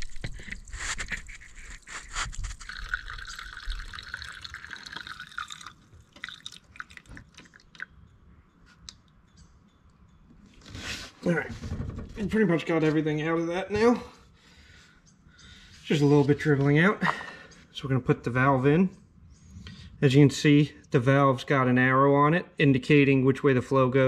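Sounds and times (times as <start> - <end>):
fuel trickling into can: 0.0 - 8.0
faint drips: 0.0 - 8.2.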